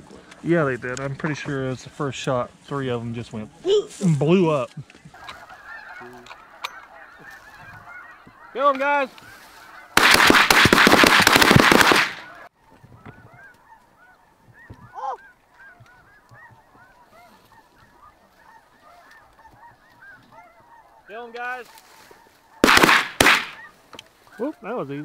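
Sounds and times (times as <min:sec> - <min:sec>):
geese honking: 0:01.2 - 0:11.1, 0:11.8 - 0:25.0
shotgun blasts: 0:10.0 - 0:12.3, 0:22.6 - 0:23.6.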